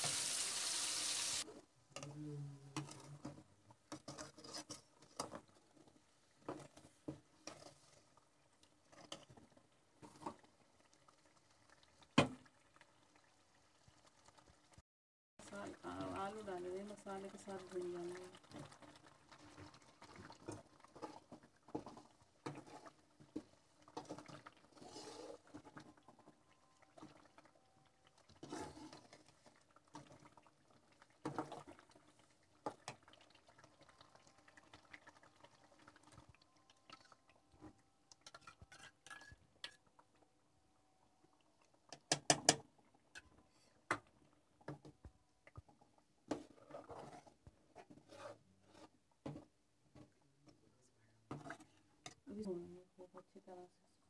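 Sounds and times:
potatoes frying: 0.0 - 1.5, 7.4 - 14.8, 15.4 - 26.2, 26.8 - 36.4
metal spatula scraping a wok: 4.0 - 5.4, 24.0 - 25.6, 28.4 - 29.2, 46.3 - 49.0.

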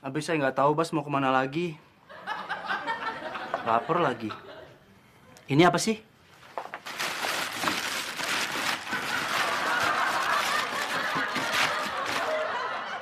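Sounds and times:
plastic bag rustling: 6.3 - 12.6.

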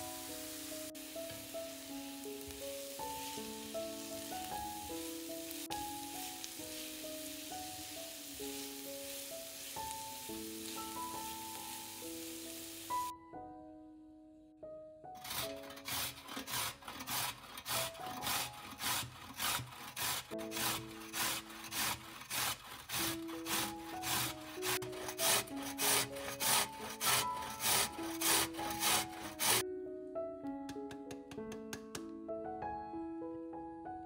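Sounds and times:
food grating on a grater: 15.2 - 29.6.

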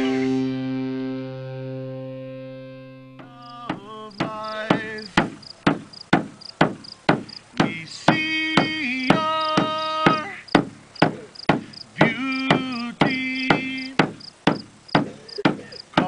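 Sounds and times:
person singing a chant: 0.0 - 1.6, 3.2 - 5.2, 7.6 - 10.5, 12.0 - 14.0
frame drum beats: 3.2 - 15.7.

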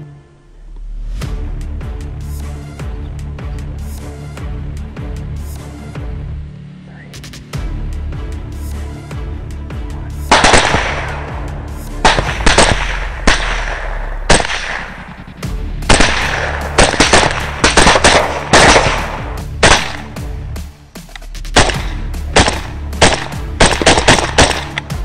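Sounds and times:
background music with bass: 0.0 - 25.0
rapid rifle fire: 10.3 - 11.3, 12.0 - 15.2, 15.9 - 20.1, 21.6 - 24.8.

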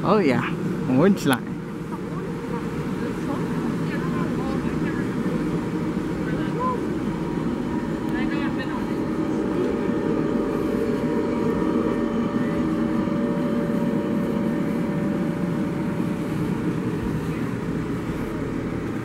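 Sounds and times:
faint even hum: 0.0 - 19.0
tram running gear rumble: 0.0 - 19.0.

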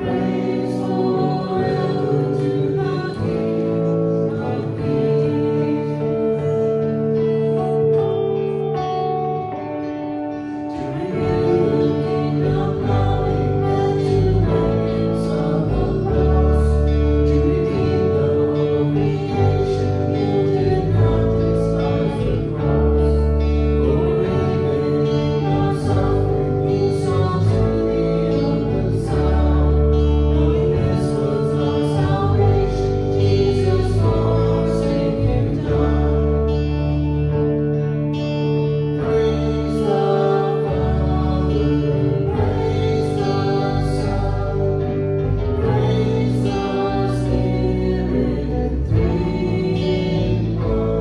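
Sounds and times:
singing: 0.0 - 8.2, 10.6 - 37.0, 39.0 - 51.0
worship band music: 0.0 - 51.0.

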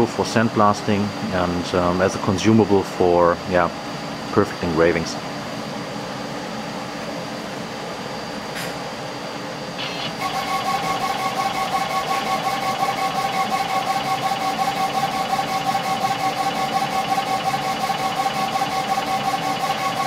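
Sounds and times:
steady machine hum: 0.0 - 20.0
laser engraver carriage motors whining: 9.6 - 20.0.

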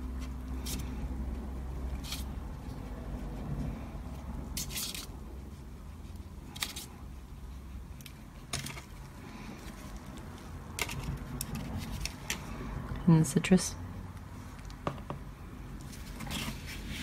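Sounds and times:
brush dabbing scratchily: 0.0 - 9.0, 9.7 - 12.6.

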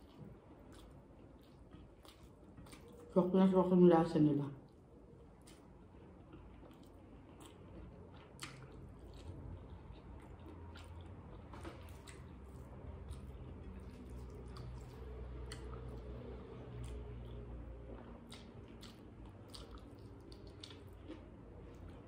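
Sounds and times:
wet chewing squishes: 0.0 - 3.7, 4.6 - 22.0
steady low hum: 0.0 - 22.0.

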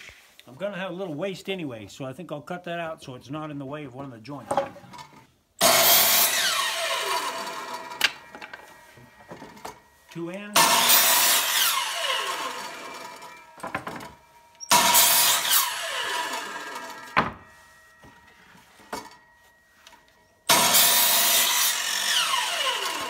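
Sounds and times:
saw blade winding down whine: 5.6 - 8.8, 10.6 - 13.7, 14.5 - 17.2, 19.8 - 23.0
miter saw cutting wood: 5.6 - 9.7, 10.6 - 14.0, 14.7 - 17.2, 20.4 - 23.0.

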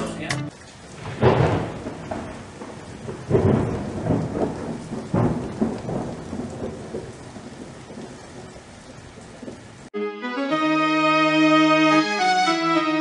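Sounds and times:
steady rain: 0.0 - 10.5
thunder clap: 0.9 - 9.7
rolling thunder: 0.9 - 9.9.

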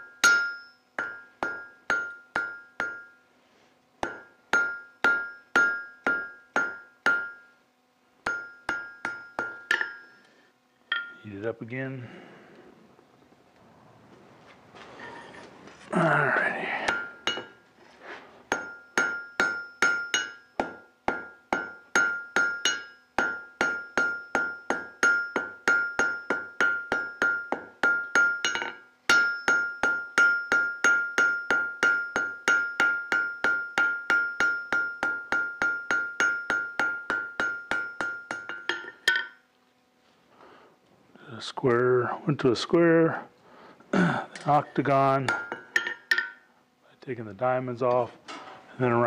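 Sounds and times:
hammer striking steel on anvil: 0.0 - 3.2, 4.0 - 7.6, 8.2 - 10.2, 10.9 - 11.2, 16.8 - 17.6, 18.5 - 39.4, 44.4 - 46.5.

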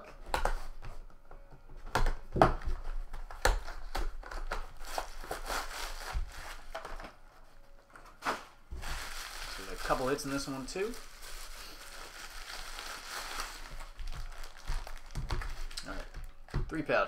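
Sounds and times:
bubble-wrap pouch rustling: 2.8 - 7.4, 8.2 - 16.5.

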